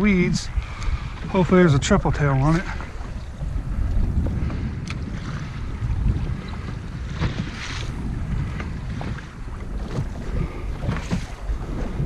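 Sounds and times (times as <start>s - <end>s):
waves slapping boat hull: 0.0s - 12.0s
wind buffeting microphone: 0.0s - 12.0s.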